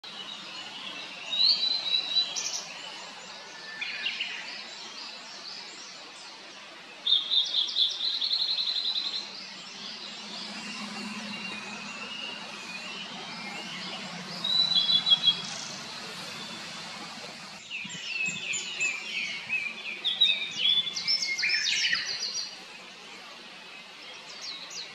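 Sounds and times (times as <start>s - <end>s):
bird singing whistled notes: 7.0s - 22.6s
faint low hum: 8.7s - 17.6s.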